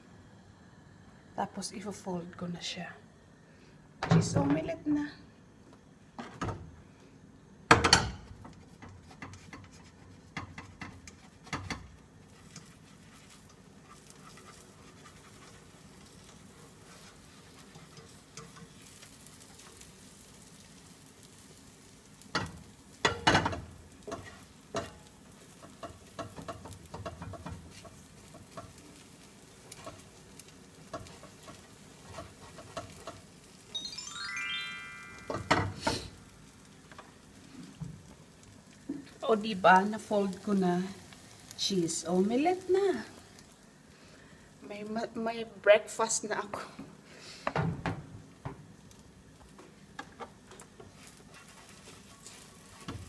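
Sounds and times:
omelet sizzling in butter: 8.3 - 46.4, 48.4 - 53.0
utensils scraping a frying pan: 8.4 - 20.0, 23.1 - 33.3, 50.2 - 53.0
rising chime sound effect: 33.7 - 35.9.

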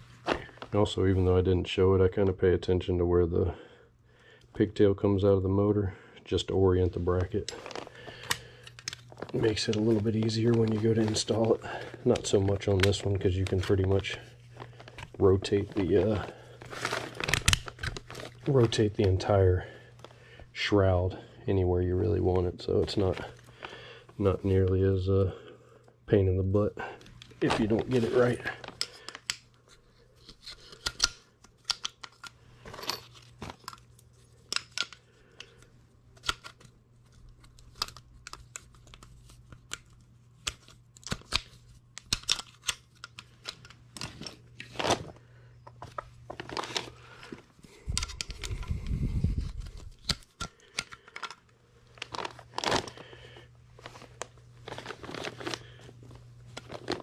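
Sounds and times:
plastic sheeting crinkling: 51.9 - 57.0.

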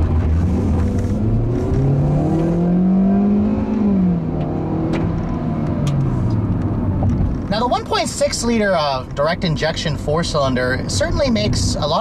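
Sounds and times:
car engine accelerating: 0.0 - 7.7.

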